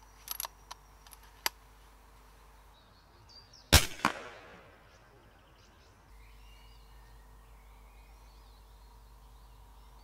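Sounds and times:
air rifle shot: 0:03.7 - 0:04.7
sharp crack: 0:03.7 - 0:04.7.

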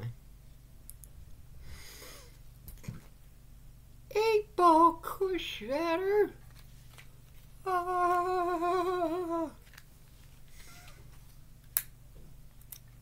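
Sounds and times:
man holding a sung note: 0:07.6 - 0:09.6.

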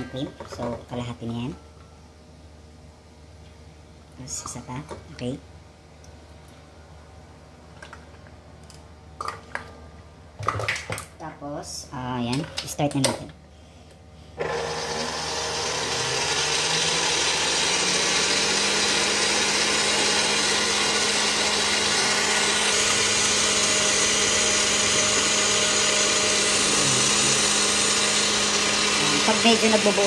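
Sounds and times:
stand mixer whisking cream: 0:14.4 - 0:30.0.

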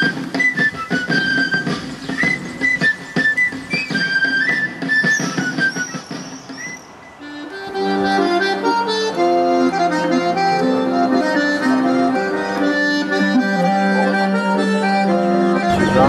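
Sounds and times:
accordion tune: 0:00.0 - 0:03.6, 0:07.2 - 0:16.0
held bass note: 0:15.7 - 0:16.0.

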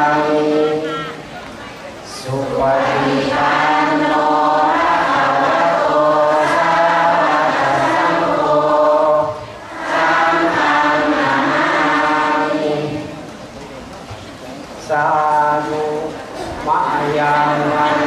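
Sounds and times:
voices chanting together: 0:00.0 - 0:01.3, 0:02.1 - 0:13.3, 0:14.8 - 0:18.0.

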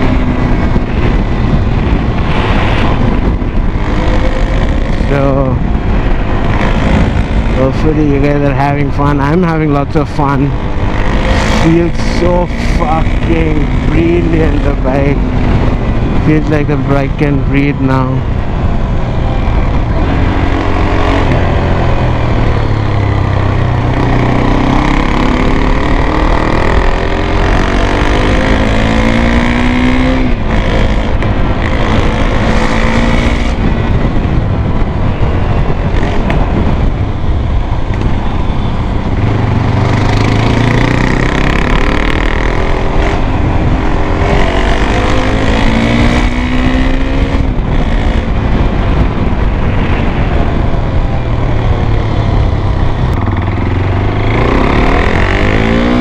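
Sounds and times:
motorcycle engine revving: 0:00.0 - 0:56.0
wind rumble: 0:00.0 - 0:56.0.

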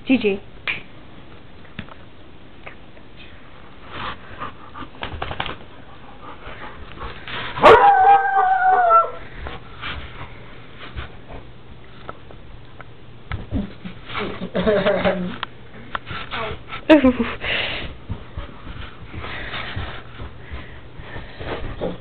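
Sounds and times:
dog crying: 0:07.6 - 0:09.2.

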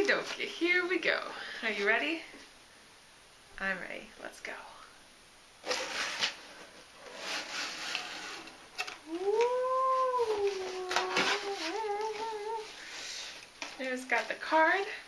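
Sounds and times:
woman humming: 0:09.0 - 0:12.8.

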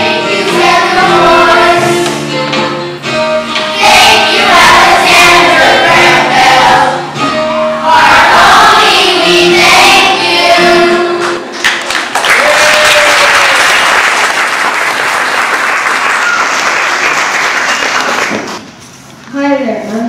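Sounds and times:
children's choir singing: 0:00.0 - 0:02.8, 0:03.5 - 0:11.6
audience applauding: 0:11.6 - 0:18.6.

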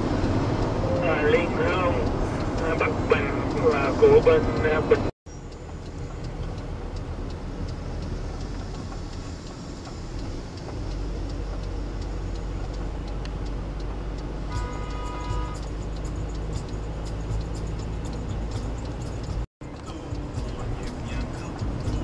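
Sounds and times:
road and engine rumble: 0:00.0 - 0:22.0
steady musical tones: 0:00.0 - 0:22.0
light ticking: 0:00.2 - 0:22.0.

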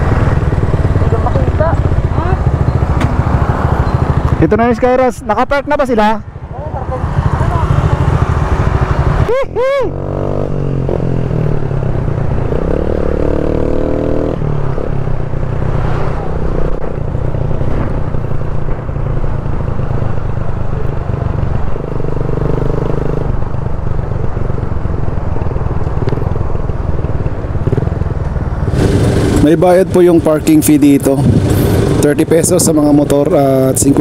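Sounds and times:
motorcycle engine running: 0:00.0 - 0:05.9, 0:06.5 - 0:34.0
wind noise on microphone: 0:31.1 - 0:32.0.

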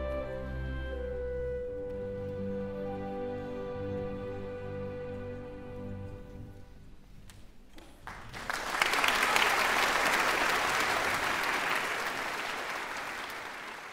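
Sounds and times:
audience applause: 0:08.0 - 0:13.9.

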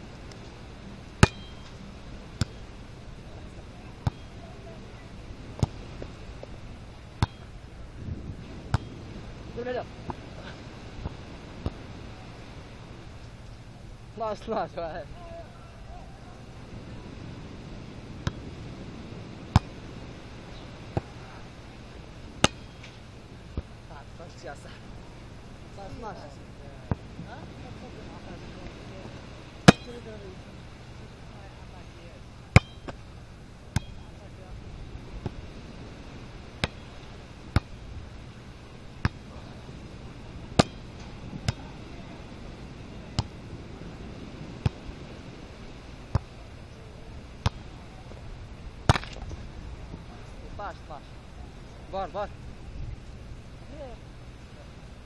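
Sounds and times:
low background hiss: 0:00.0 - 0:55.0
low background noise: 0:00.0 - 0:55.0
volleyball slaps: 0:01.2 - 0:01.8, 0:02.4 - 0:02.6, 0:07.2 - 0:07.5, 0:18.2 - 0:18.4, 0:19.5 - 0:19.8, 0:22.4 - 0:23.7, 0:29.6 - 0:30.0, 0:32.5 - 0:33.0, 0:36.6 - 0:36.8, 0:39.0 - 0:39.4, 0:40.5 - 0:41.7, 0:47.4 - 0:47.7, 0:48.8 - 0:49.3.

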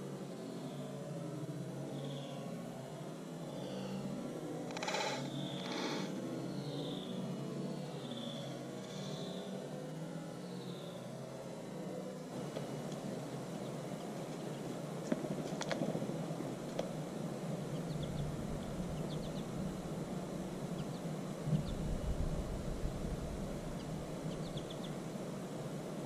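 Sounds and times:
steady woodland noise: 0:00.0 - 0:26.0
low rumble: 0:17.7 - 0:25.0.

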